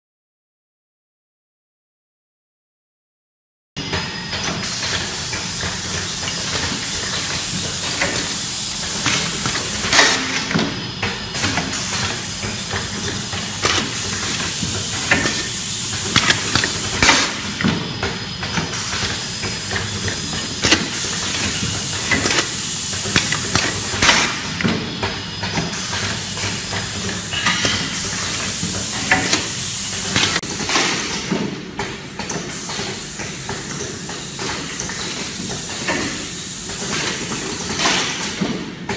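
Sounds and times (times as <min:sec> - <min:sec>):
actuators clicking and clacking: 0:03.8 - 0:38.9
loud air hiss: 0:04.7 - 0:10.6, 0:11.7 - 0:17.6, 0:18.7 - 0:24.6.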